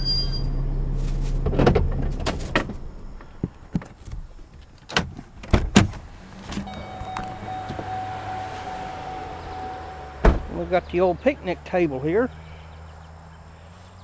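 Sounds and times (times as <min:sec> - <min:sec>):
vehicle engine idling: 0:06.0 - 0:14.0.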